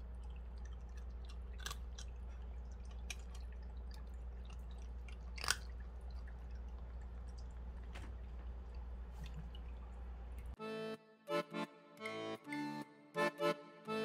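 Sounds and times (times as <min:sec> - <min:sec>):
cat crunching dry kibble: 0:00.0 - 0:07.9
steady low hum: 0:00.0 - 0:10.6.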